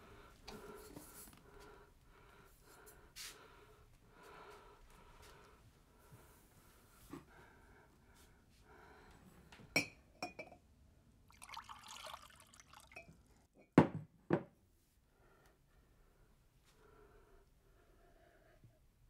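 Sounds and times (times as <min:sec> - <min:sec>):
glass clinking on glass: 0:09.8 - 0:10.6
water pouring into glass: 0:11.3 - 0:13.3
glass knocking on wooden table: 0:13.7 - 0:14.5.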